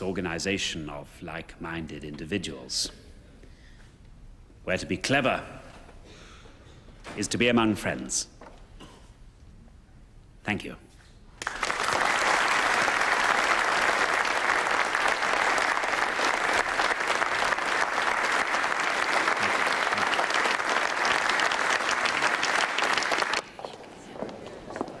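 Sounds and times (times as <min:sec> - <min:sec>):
audience applauding: 0:11.4 - 0:23.5.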